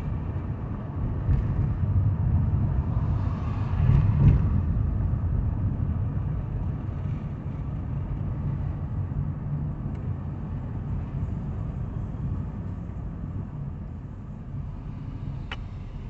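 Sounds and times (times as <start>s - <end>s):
car cabin road and engine rumble: 0.0s - 16.0s.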